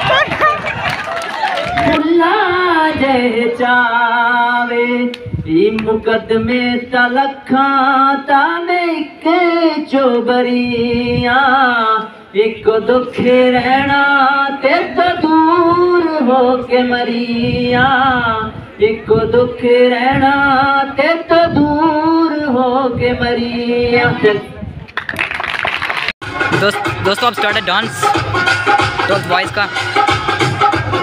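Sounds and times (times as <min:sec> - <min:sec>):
man singing into microphone: 0:02.0 - 0:24.5.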